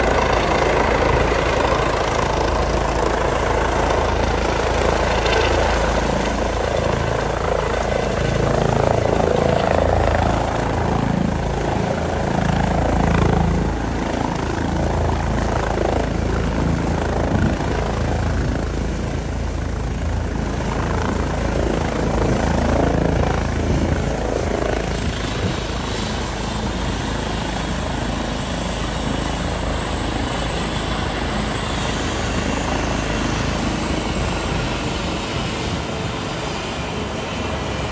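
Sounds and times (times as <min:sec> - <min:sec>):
helicopter rotor and turbine noise: 0:00.0 - 0:37.9.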